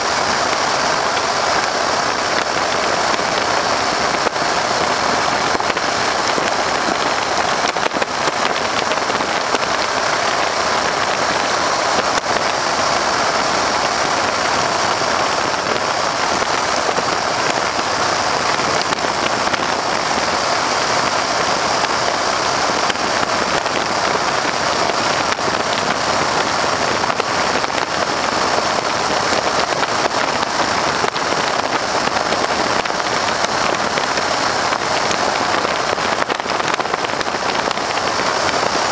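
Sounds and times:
aircraft engine noise: 0.0 - 38.9.

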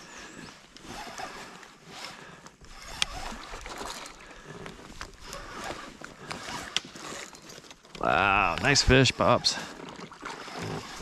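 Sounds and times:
water splashing around a boat: 0.0 - 11.0
fish thrashing at the surface: 3.1 - 4.5.

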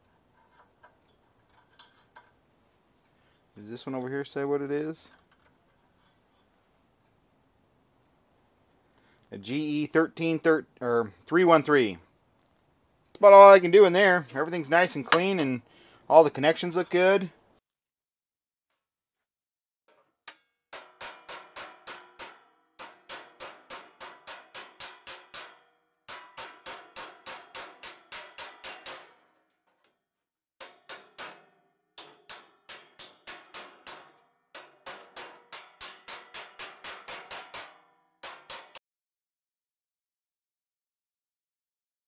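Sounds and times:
hammer rapping on steel dolly: 13.2 - 15.6, 32.0 - 38.8.

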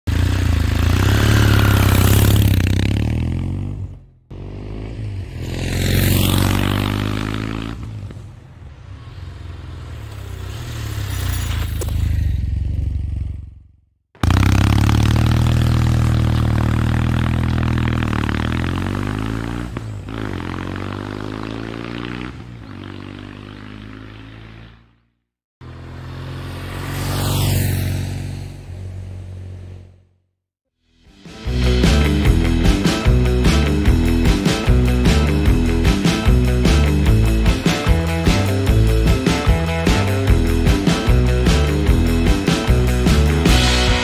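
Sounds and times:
motorcycle engine passing by: 0.1 - 24.9, 25.6 - 30.0.

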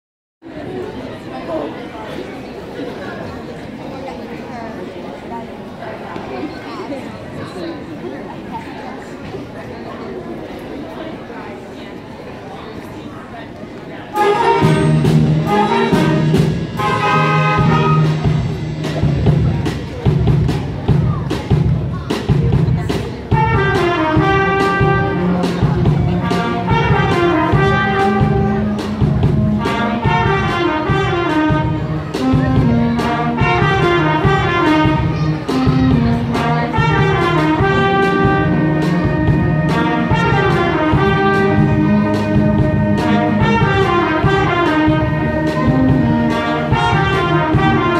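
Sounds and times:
wind band playing lively piece: 14.1 - 47.9
steady drum beat: 14.2 - 47.9.

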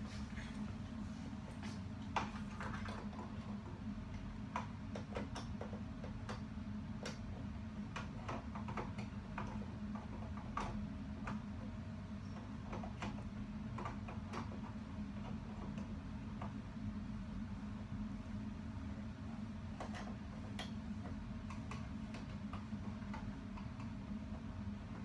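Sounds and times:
steady low hum: 0.0 - 25.0
monitor plastic clicks and knocks: 2.0 - 11.5, 12.3 - 16.6, 19.7 - 25.0.

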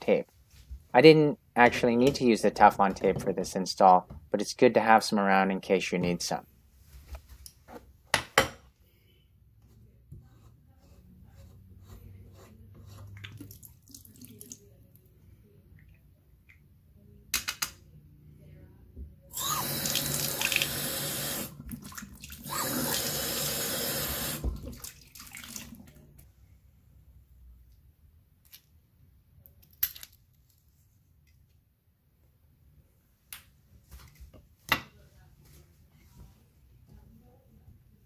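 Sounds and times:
water running into sink: 19.4 - 25.8.

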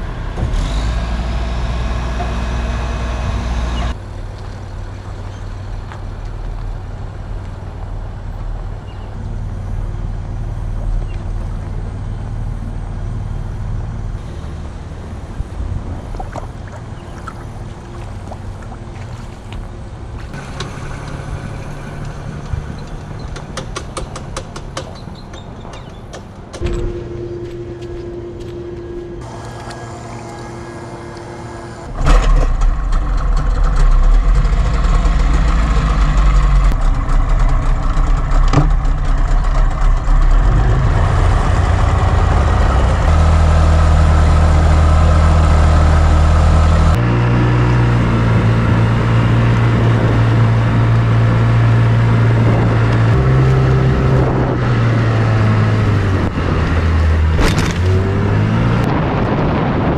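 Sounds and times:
engine running: 0.0 - 24.8, 26.3 - 59.9.

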